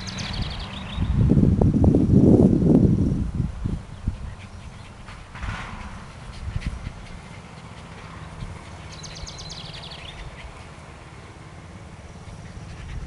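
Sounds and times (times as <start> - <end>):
bird trilling: 6.2 - 10.8.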